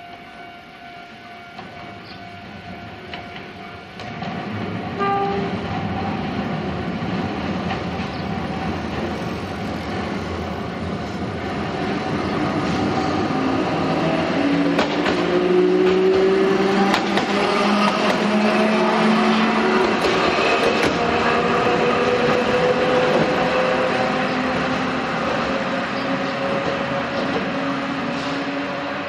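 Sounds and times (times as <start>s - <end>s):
tram motor gear whine: 0.0s - 29.0s
wheels clacking over rail joints: 14.5s - 28.4s.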